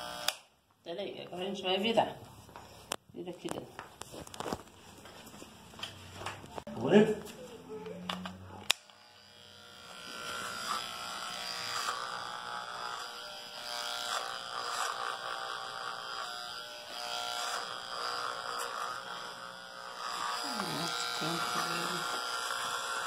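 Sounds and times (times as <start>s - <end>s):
electric hair clipper buzzing: 0.0s - 0.5s, 8.2s - 23.0s.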